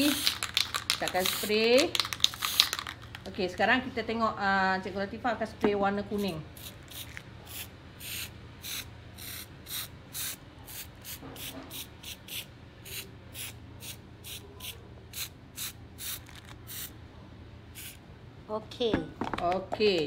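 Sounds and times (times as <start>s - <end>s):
spray paint can hissing: 0.0s - 3.0s, 6.6s - 16.9s, 17.8s - 18.0s.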